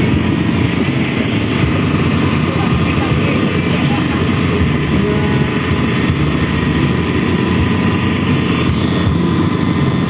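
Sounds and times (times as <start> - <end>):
boat engine droning: 0.0 - 10.0.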